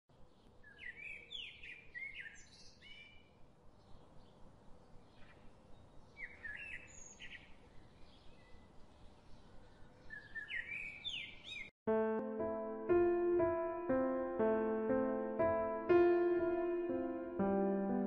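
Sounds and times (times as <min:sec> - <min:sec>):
faint birdsong chirps: 0:00.1 - 0:11.7.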